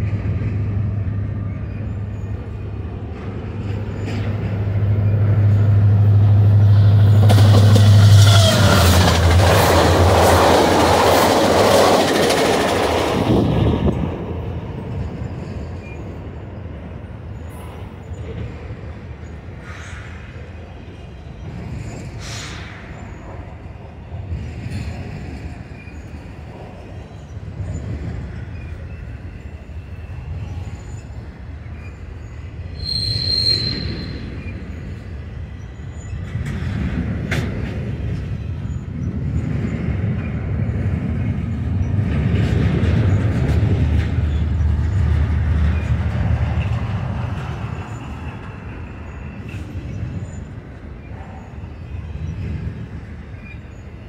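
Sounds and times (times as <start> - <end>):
freight train rumbling over rails: 0.0 - 54.0
high wheel squeal: 7.1 - 9.4, 24.4 - 36.5, 45.7 - 52.6.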